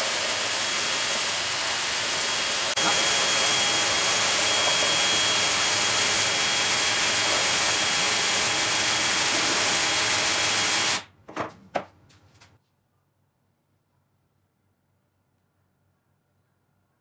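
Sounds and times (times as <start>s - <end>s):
drill motor whine: 0.0s - 11.0s
sanding belt hissing on wood: 0.0s - 11.0s.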